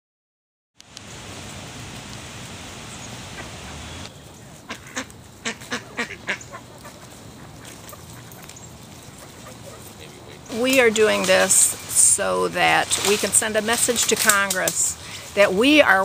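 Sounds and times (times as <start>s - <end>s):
faint background noise: 0.8s - 16.0s
steady rushing hiss: 0.8s - 16.0s
duck quacks: 4.7s - 8.4s.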